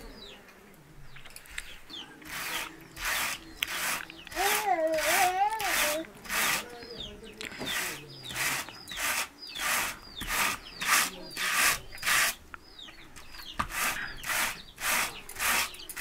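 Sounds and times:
hand cards rasping on wool: 0:02.3 - 0:06.8, 0:07.6 - 0:12.4, 0:13.5 - 0:16.0.

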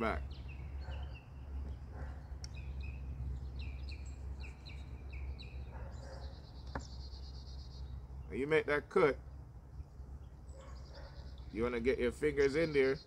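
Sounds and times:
low steady rumble: 0:00.0 - 0:12.8.

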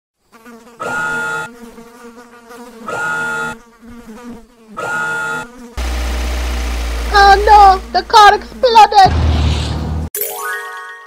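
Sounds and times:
short buzzing tones: 0:00.7 - 0:01.6, 0:02.8 - 0:03.7, 0:04.7 - 0:08.3.

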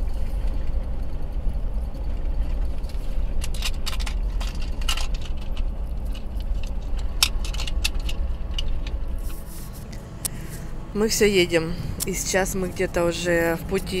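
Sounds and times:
car road rumble: 0:00.0 - 0:14.0
light clicks and rattles: 0:02.0 - 0:10.0.

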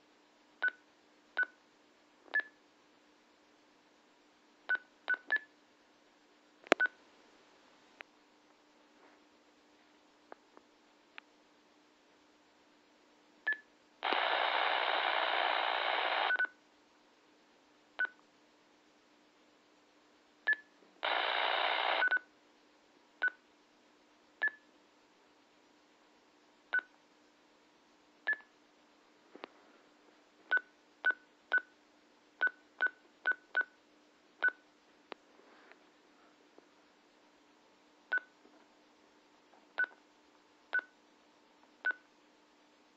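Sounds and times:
radio static hiss: 0:14.0 - 0:16.4, 0:21.0 - 0:22.1.

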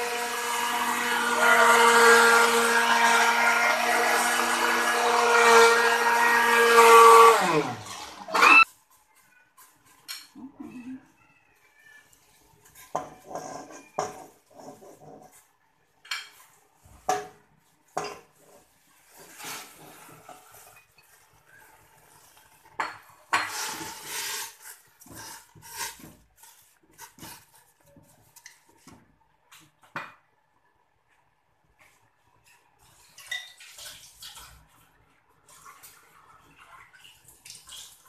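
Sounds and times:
rustling and stirring: 0:00.6 - 0:38.0
water boiling in a pot: 0:12.0 - 0:38.0.

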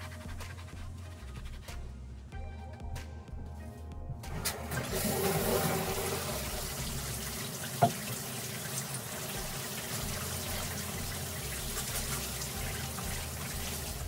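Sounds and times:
water running from bathtub faucet: 0:04.3 - 0:14.0.

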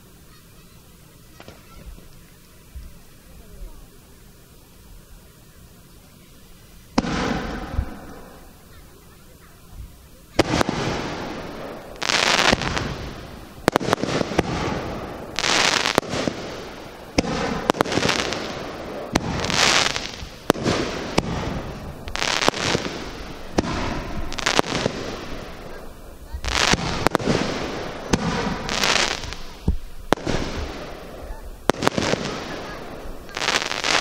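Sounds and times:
rushing hiss: 0:00.0 - 0:34.0
firework shells bursting: 0:06.9 - 0:08.6, 0:10.3 - 0:34.0.

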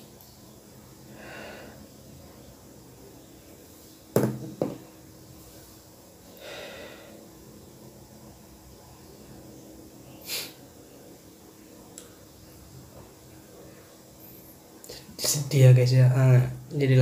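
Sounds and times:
person breathing in: 0:01.1 - 0:01.8, 0:06.4 - 0:07.2.

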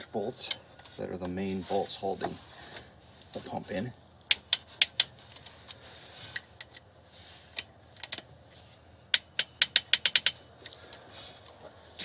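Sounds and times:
ratchet wrench clicking: 0:09.1 - 0:10.4.

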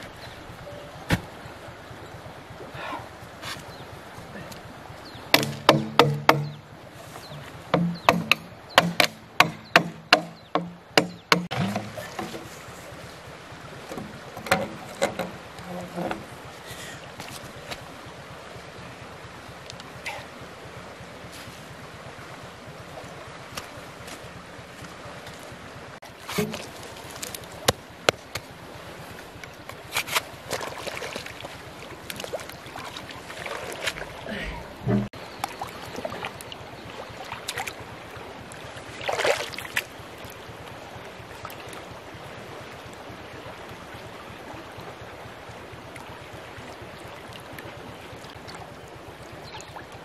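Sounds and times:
water sounds: 0:00.0 - 0:50.0
knocks on plastic pipe: 0:05.3 - 0:06.6, 0:07.7 - 0:11.9.

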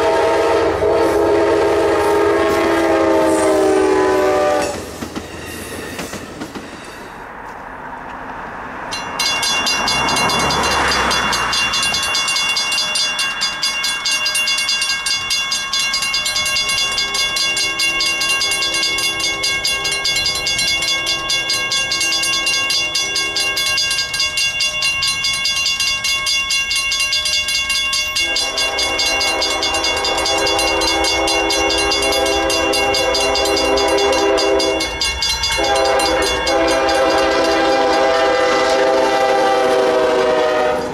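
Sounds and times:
train horn: 0:00.0 - 0:05.0, 0:28.2 - 0:40.9
railroad crossing bell ringing: 0:02.2 - 0:07.0, 0:08.8 - 0:40.9.

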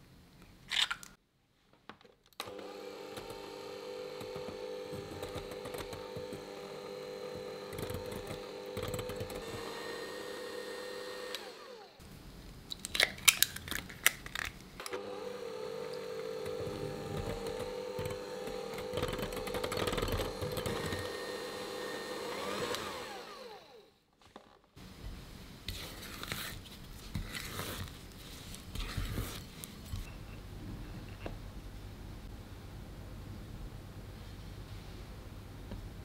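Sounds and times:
electric hand mixer whirring: 0:02.4 - 0:12.0, 0:14.9 - 0:23.9.

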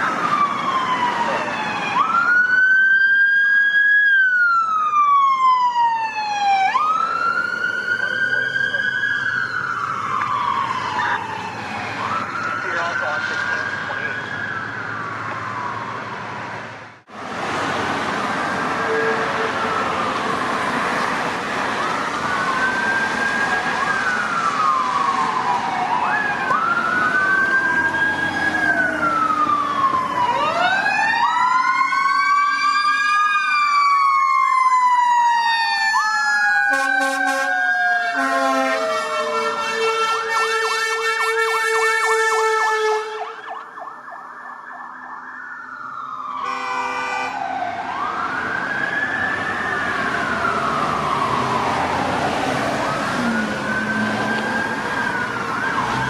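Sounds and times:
sirens wailing and yelping: 0:00.0 - 0:56.0
short horn blasts: 0:46.4 - 0:47.3.

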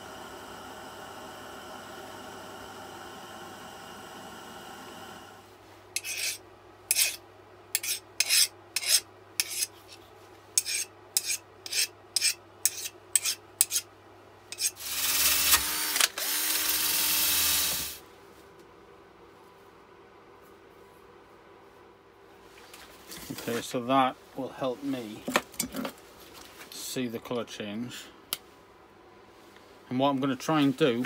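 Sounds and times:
gas torch hissing: 0:00.0 - 0:05.4
blade scraped by hand: 0:06.0 - 0:07.2, 0:07.8 - 0:10.0, 0:10.6 - 0:13.9, 0:14.5 - 0:14.8
drill spinning abrasive wheel: 0:14.8 - 0:18.0.

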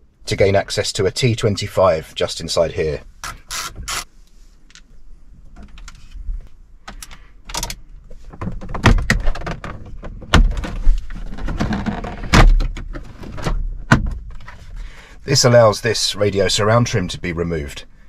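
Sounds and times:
plastic scraping and rubbing: 0:08.1 - 0:13.6.

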